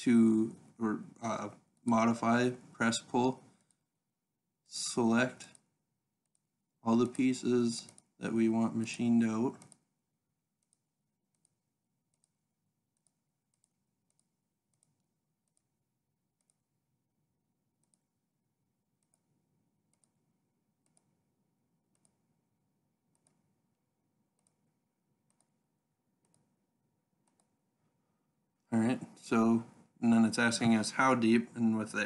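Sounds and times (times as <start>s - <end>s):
faint computer mouse clicks: 7.8s - 8.1s, 9.5s - 9.8s, 21.9s - 22.2s, 25.3s - 25.5s, 26.2s - 26.5s, 27.2s - 27.5s.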